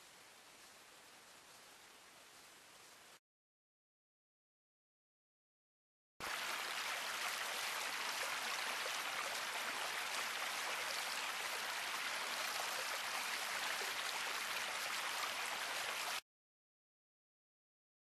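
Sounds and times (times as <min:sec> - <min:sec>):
stream running over rocks: 0:06.2 - 0:16.2.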